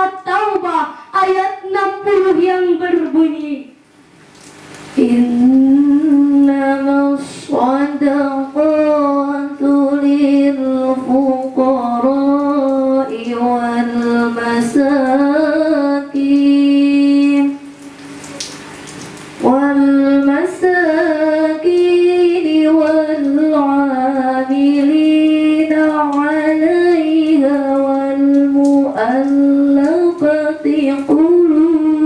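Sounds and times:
woman chanting melodically: 0.0 - 3.8, 5.0 - 17.7, 19.4 - 32.0.

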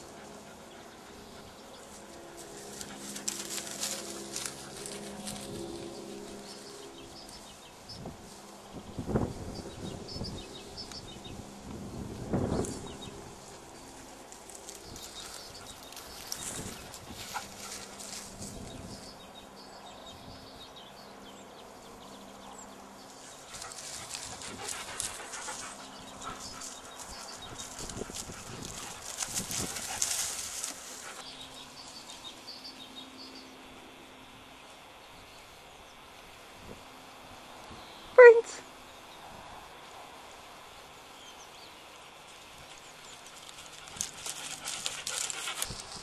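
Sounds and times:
crackles and scuffs: 1.9 - 6.7, 23.3 - 31.2.

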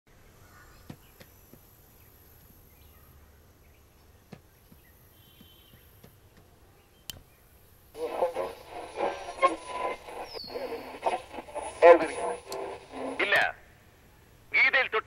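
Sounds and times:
faint chirps: 6.8 - 13.2
radio knob click: 12.4 - 13.5.

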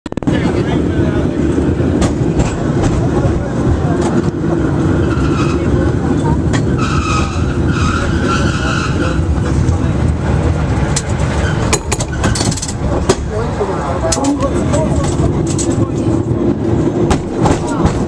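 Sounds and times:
cable car rumble and rattle: 0.1 - 18.0
high squeal: 6.8 - 9.3.

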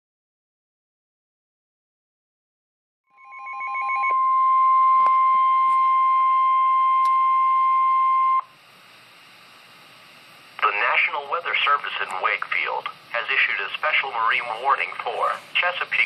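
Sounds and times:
high-pitched alarm tone: 3.1 - 8.6
faint radio hiss: 8.4 - 16.0.

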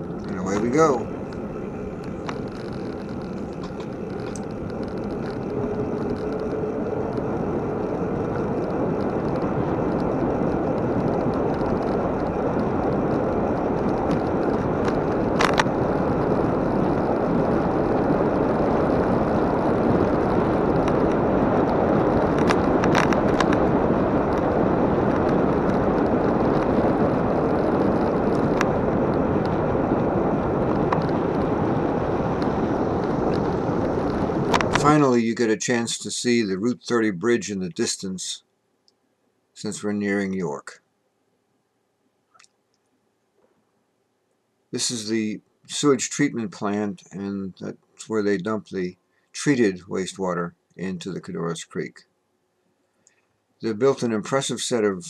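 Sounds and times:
bicycle tyre noise: 0.0 - 37.5
wind rushing on microphone: 0.0 - 38.4.

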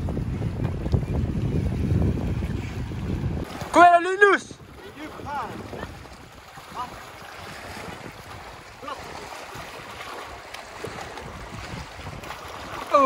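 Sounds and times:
waves lapping on rocks: 0.0 - 13.0.

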